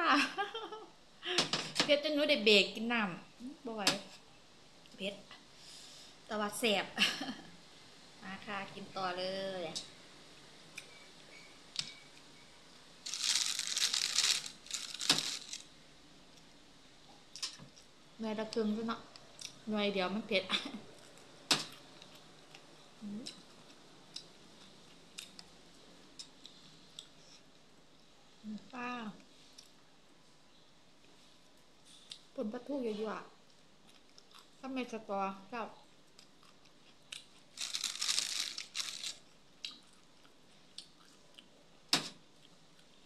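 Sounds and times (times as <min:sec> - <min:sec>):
person chewing: 0:13.1 - 0:15.6, 0:33.4 - 0:34.6, 0:36.0 - 0:41.5.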